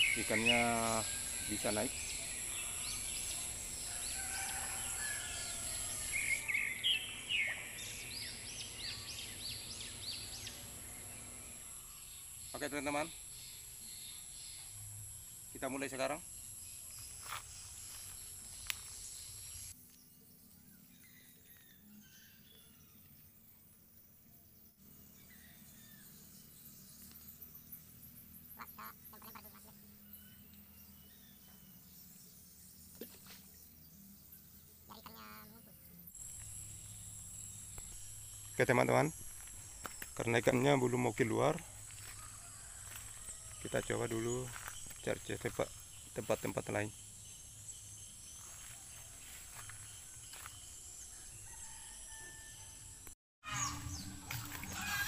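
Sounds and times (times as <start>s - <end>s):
high-pitched insect drone: 0.0s - 6.9s, 34.2s - 51.2s
birds chirping: 0.0s - 14.8s, 34.8s - 52.2s.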